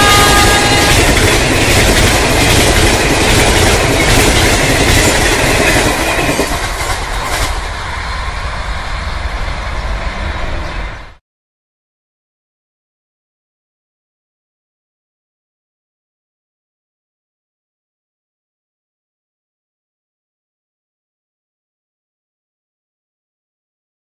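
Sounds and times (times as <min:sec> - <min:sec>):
train rushing past: 0:00.0 - 0:11.2.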